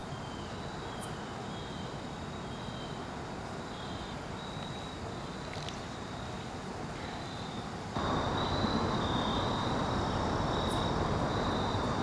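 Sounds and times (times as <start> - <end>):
insects trilling: 0.0 - 12.0
steady background hiss: 0.0 - 12.0.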